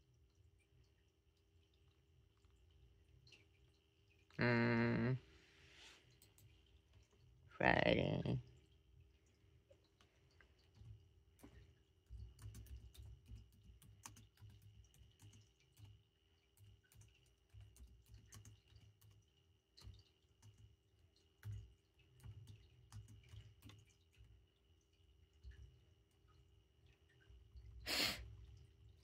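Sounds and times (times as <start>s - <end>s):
typing taps and clicks: 10.4s - 24.4s.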